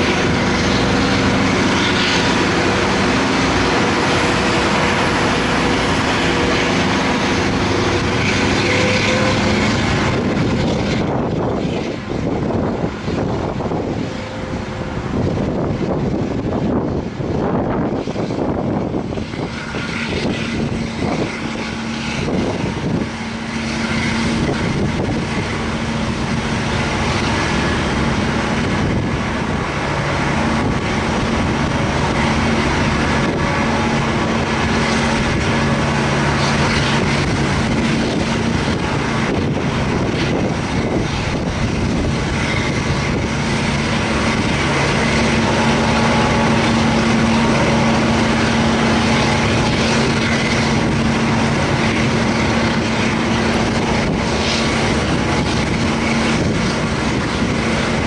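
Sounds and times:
locomotive diesel engine revving: 0:00.0 - 0:58.0.

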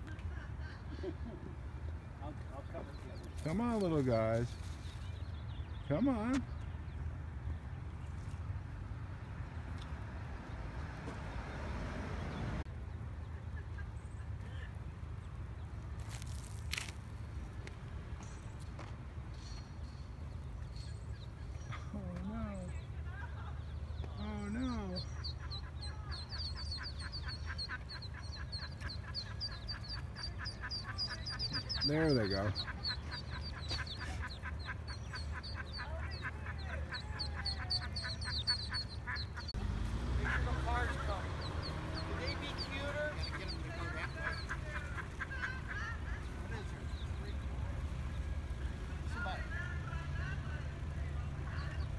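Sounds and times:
ducklings peeping: 0:23.6 - 0:49.4.

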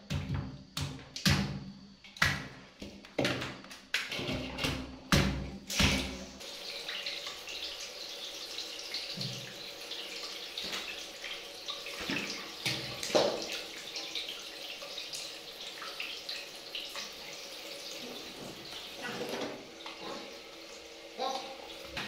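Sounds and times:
knocks and splashes: 0:00.1 - 0:06.3, 0:11.9 - 0:13.7.

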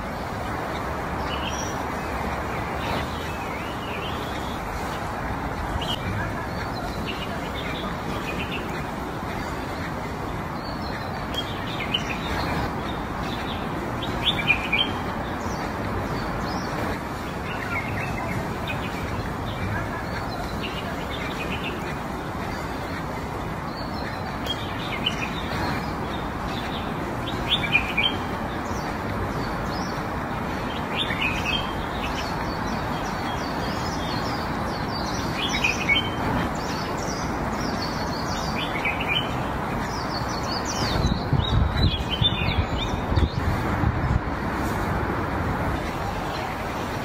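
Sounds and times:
small birds chirping: 0:00.0 - 0:47.0
steady rushing noise: 0:00.0 - 0:47.0.

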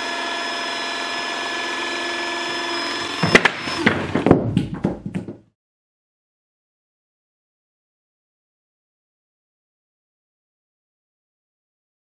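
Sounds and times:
hydraulic pump whining: 0:00.0 - 0:04.2.

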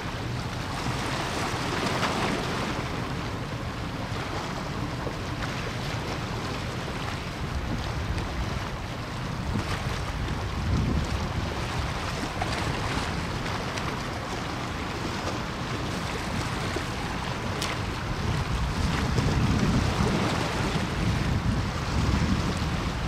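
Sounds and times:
rush of open water: 0:00.0 - 0:23.0
wind buffeting microphone: 0:07.4 - 0:13.6, 0:16.4 - 0:23.0.

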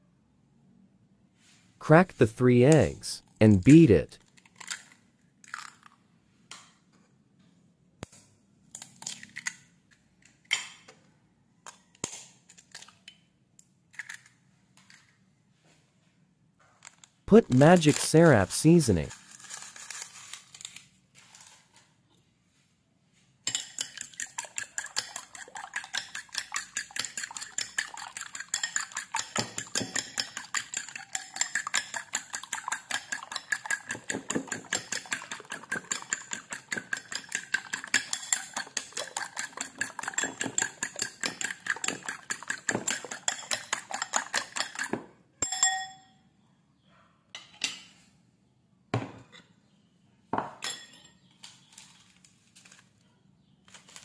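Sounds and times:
fork clinking against bowl: 0:23.5 - 0:46.0.

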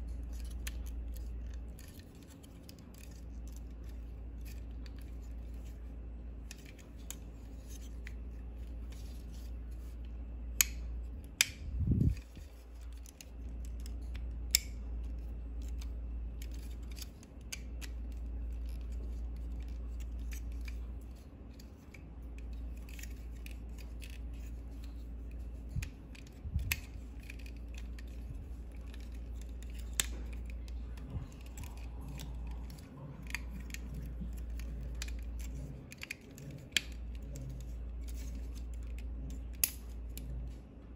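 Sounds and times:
steady low hum: 0:00.0 - 0:40.9
plastic toy parts clicking: 0:10.6 - 0:40.2.

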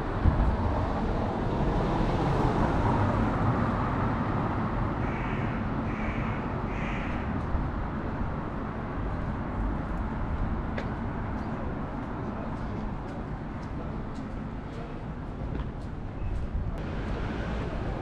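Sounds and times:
street traffic rumble: 0:00.0 - 0:18.0
crow cawing: 0:05.0 - 0:07.3.

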